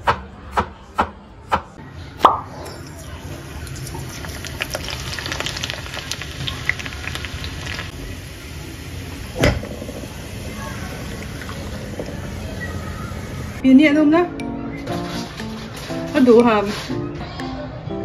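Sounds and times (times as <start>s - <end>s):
garlic sizzling in hot oil: 3.2s - 13.6s.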